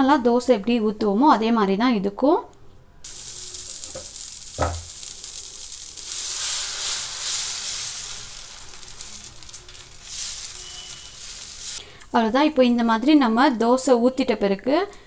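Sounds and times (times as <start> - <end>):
batter sizzling on hot iron pan: 3.0 - 12.3.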